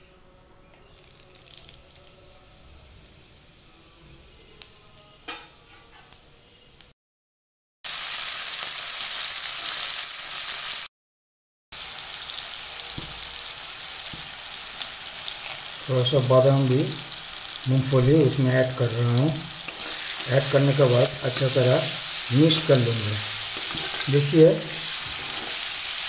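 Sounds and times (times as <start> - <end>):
seeds crackling in hot oil: 0.8 - 2.5, 7.9 - 10.9, 11.8 - 26.0
food sizzling in oil: 0.8 - 6.1, 7.9 - 10.9, 11.8 - 26.0.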